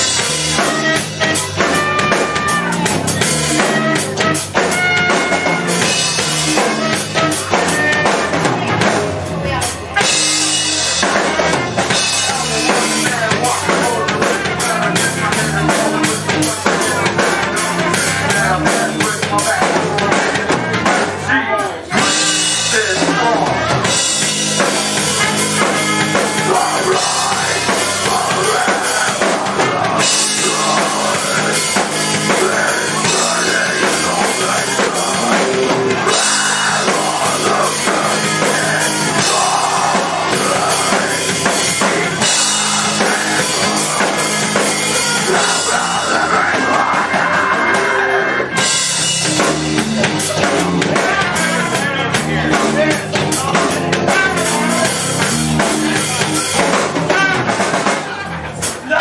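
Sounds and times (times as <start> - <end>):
drum kit with cymbals: 0.0 - 59.0
electric bass: 0.0 - 59.0
electric guitar: 0.0 - 59.0
trumpet: 0.2 - 8.6.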